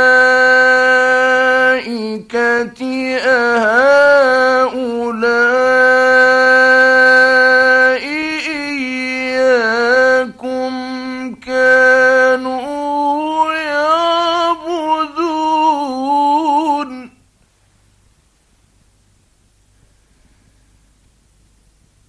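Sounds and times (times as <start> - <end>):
man chanting melismatic recitation: 0.0 - 17.2
faint recording hiss: 0.0 - 22.0.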